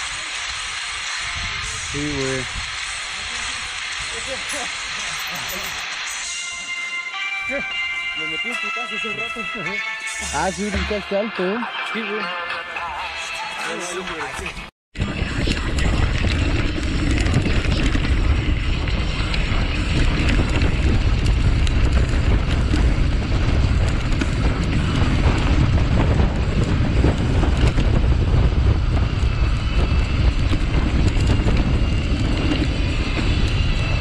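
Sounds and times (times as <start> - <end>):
wind noise on microphone: 0.0 - 4.4, 15.0 - 34.0
bike tyre noise: 0.0 - 7.1, 14.5 - 34.0
bike rattling over stony ground: 15.0 - 34.0.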